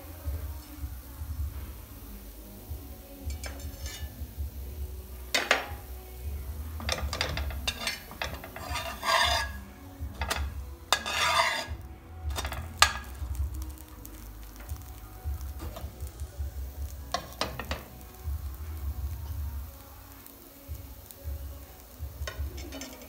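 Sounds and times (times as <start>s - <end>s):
spatula scraping frying pan: 3.3s - 4.2s, 6.8s - 13.2s, 22.3s - 23.0s.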